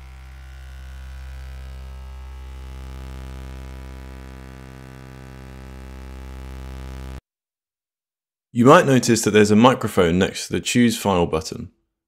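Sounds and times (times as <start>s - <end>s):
low synthesized buzz: 0.0s - 7.2s.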